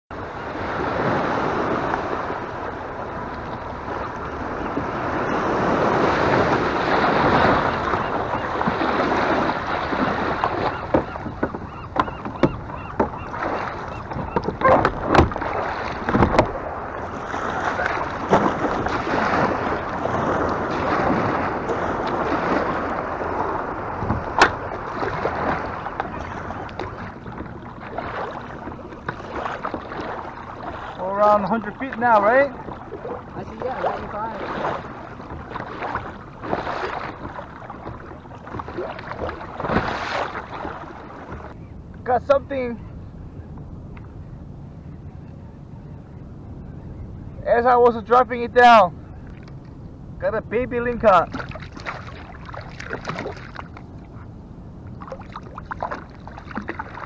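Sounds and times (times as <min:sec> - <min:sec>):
waves washing in shallows: 0:00.1 - 0:43.1, 0:47.2 - 0:57.0
wind buffeting microphone: 0:00.1 - 0:47.4
knocks against plastic hull: 0:16.0 - 0:16.6.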